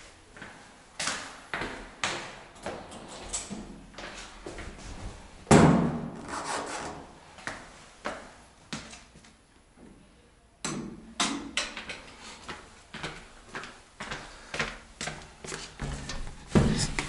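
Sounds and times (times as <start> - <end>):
footsteps on hard floor: 12.4 - 17.0.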